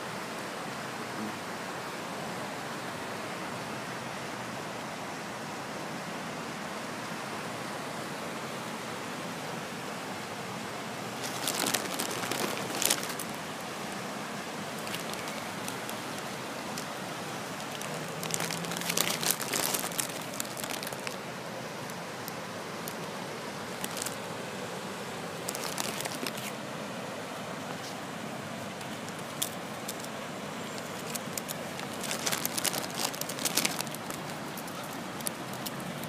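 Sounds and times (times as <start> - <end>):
steady outdoor hiss: 0.0 - 36.0
crackling clicks: 11.2 - 13.4, 29.1 - 30.1, 30.8 - 36.0.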